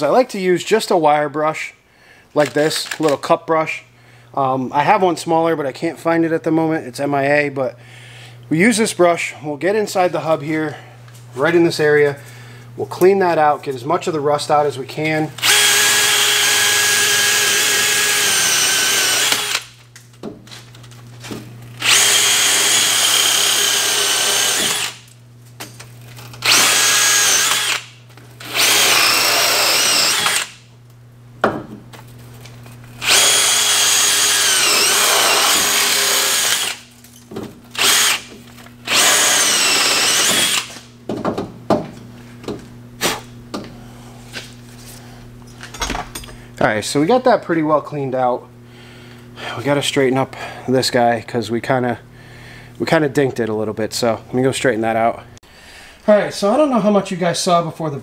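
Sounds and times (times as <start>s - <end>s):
drill wire brush whining: 15.4s - 19.7s, 21.7s - 25.1s, 26.2s - 30.6s, 32.8s - 37.0s, 37.7s - 40.9s.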